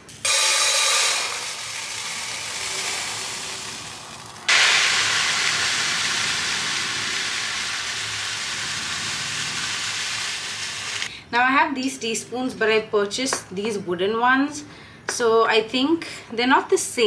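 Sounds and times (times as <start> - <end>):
sugar pouring into a metal tin: 0.2 - 11.0.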